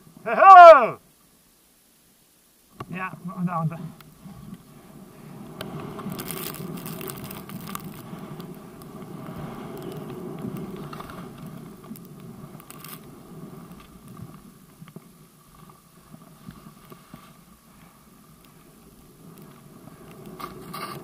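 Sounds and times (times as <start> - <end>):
skis sliding through snow: 3.0 - 21.0
faint clicks: 5.6 - 21.0.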